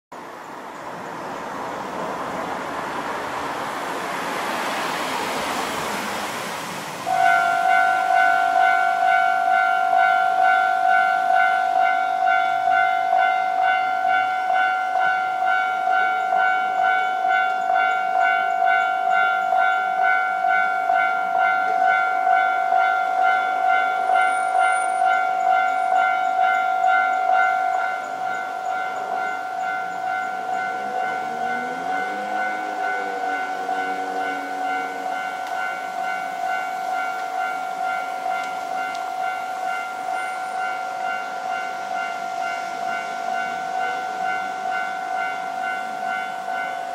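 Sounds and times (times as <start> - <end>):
vehicle passing: 1.2 - 7.1
level crossing warning bell: 7.1 - 46.9.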